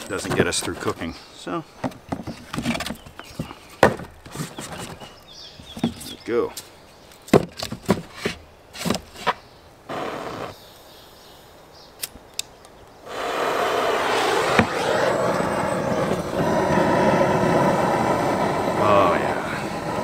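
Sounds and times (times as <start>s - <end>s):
torch flame hissing: 9.9s - 10.6s, 13.0s - 20.0s
torch igniter clicks: 12.0s - 12.8s.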